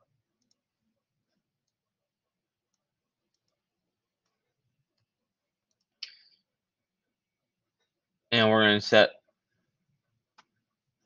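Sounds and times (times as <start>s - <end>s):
computer mouse clicks: 0.3s - 0.7s, 2.7s - 3.6s, 4.2s - 6.4s, 10.3s - 10.6s.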